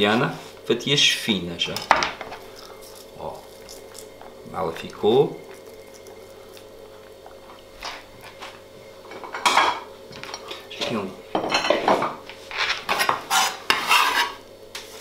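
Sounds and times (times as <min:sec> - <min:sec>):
kitchenware clinks and knocks: 0:11.3 - 0:12.2.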